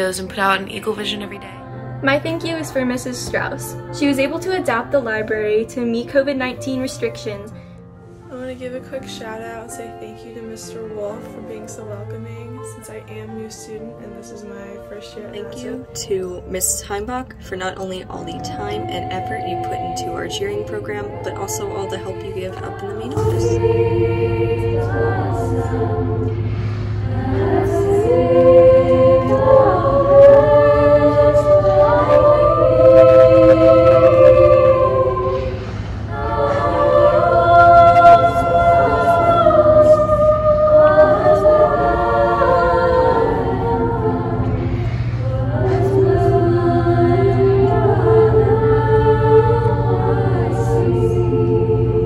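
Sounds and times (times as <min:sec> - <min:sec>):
girls' choir singing: 0:00.0 - 0:08.2, 0:09.1 - 0:52.0
steady low hum: 0:00.0 - 0:52.0.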